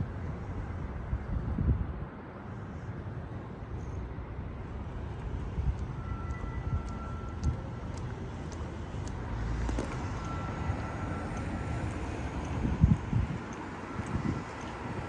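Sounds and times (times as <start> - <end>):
passing vehicles rumbling: 0.0 - 15.0
faint light ticks: 5.7 - 9.2.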